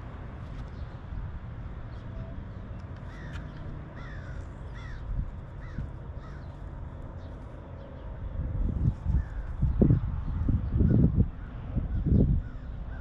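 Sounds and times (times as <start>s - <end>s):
wind rumble on microphone: 0.0s - 13.0s
bird calling: 3.1s - 6.6s.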